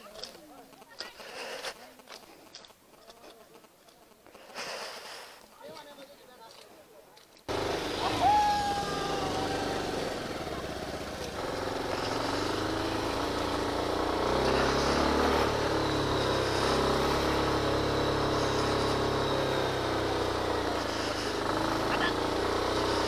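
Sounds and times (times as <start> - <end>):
motorcycle engine revving: 7.5 - 23.0.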